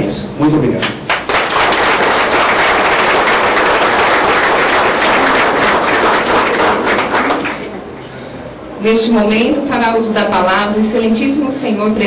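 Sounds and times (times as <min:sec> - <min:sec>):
crowd applauding: 0:00.8 - 0:07.9.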